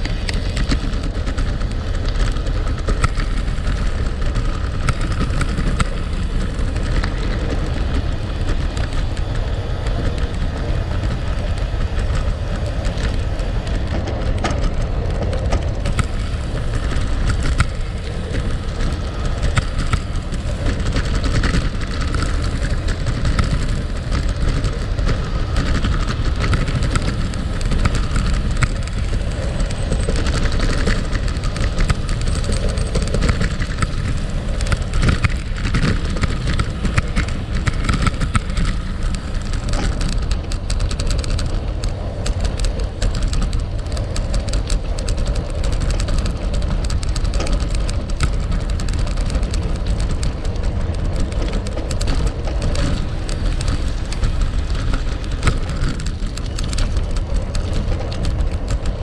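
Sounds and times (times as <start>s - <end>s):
bike tyres crunching on gravel: 0.0s - 59.0s
deep steady rumble: 0.0s - 59.0s.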